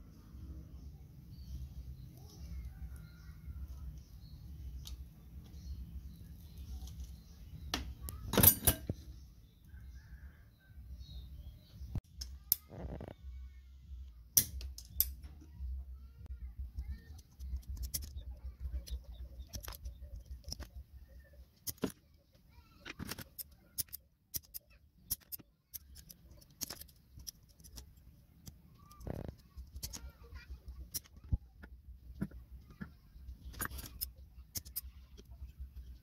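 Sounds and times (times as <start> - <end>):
metal tools clinking: 8.3 - 9.0
metal shears snipping sheet: 14.4 - 15.2, 23.0 - 27.9.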